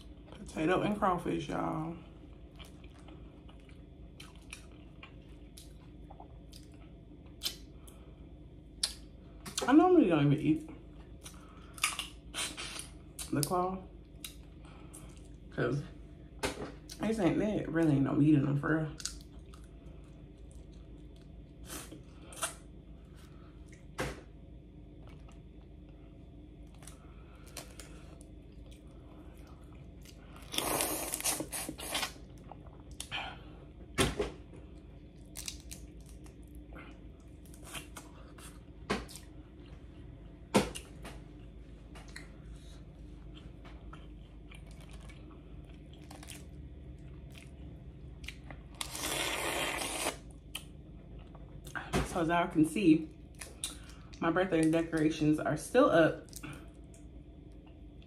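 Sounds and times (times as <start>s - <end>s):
chewing: 2.2s - 7.6s, 41.4s - 51.8s
crawfish shells cracking: 35.3s - 36.4s.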